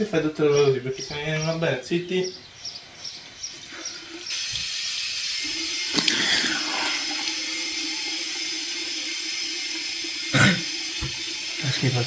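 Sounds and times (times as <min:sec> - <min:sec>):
water running from tap: 0:03.7 - 0:12.0.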